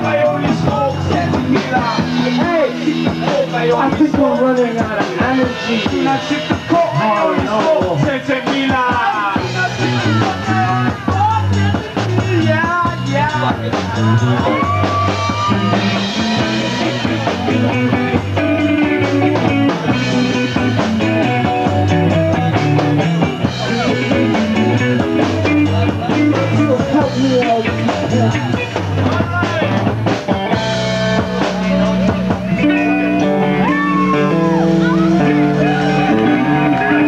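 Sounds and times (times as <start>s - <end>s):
bass guitar: 0.0s - 37.0s
drum kit: 0.0s - 37.0s
electric guitar lead: 12.9s - 37.0s.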